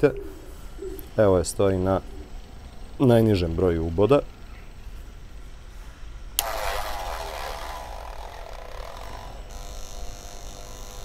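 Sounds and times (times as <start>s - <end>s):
jigsaw motor humming: 6.4s - 11.0s.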